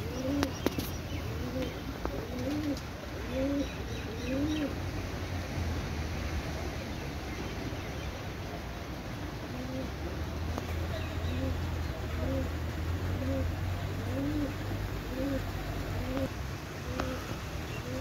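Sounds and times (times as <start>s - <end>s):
pigeon cooing: 0.0s - 4.8s, 9.5s - 10.1s, 10.8s - 18.0s.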